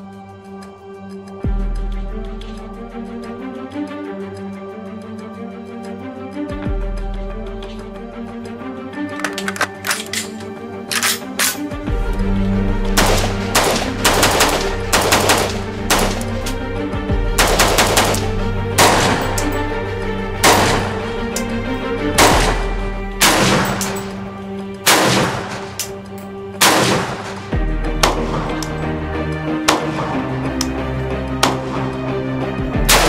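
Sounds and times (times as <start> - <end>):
background music with steady beat: 0.0 - 33.0
rifle gunshots: 13.0 - 16.4, 17.4 - 19.5, 20.4 - 21.0, 22.2 - 24.0, 24.9 - 26.0, 26.6 - 28.6.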